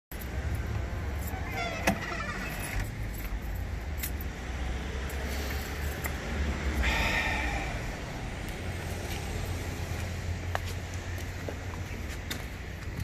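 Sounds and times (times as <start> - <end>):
door swinging shut: 1.4 - 2.9.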